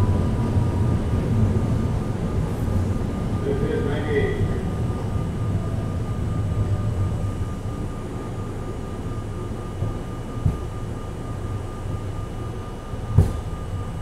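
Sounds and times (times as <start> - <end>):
subway car rumbling on track: 0.0 - 14.0
sharp knocks: 13.1 - 13.6.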